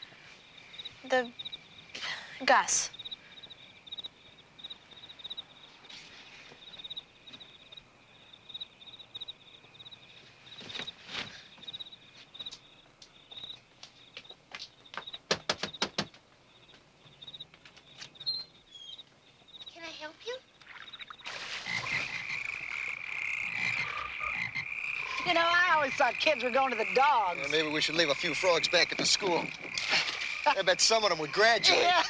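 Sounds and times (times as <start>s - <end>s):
crickets chirping: 0.0s - 32.0s
rapid sharp taps: 13.8s - 16.8s.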